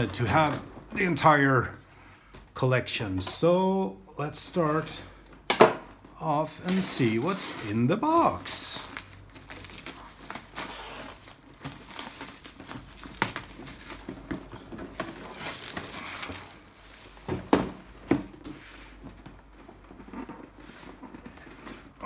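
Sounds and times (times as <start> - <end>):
plastic wrap crinkling: 6.2 - 18.0.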